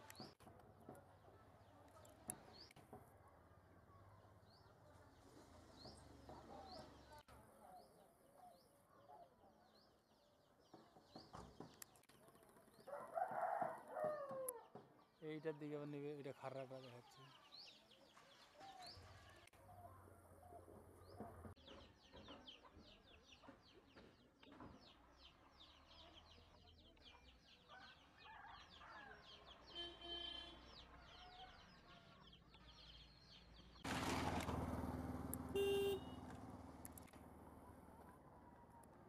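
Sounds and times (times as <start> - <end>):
vehicle horn toot: 29.7 - 30.6, 35.5 - 36.3
motor vehicle passing: 33.5 - 38.4.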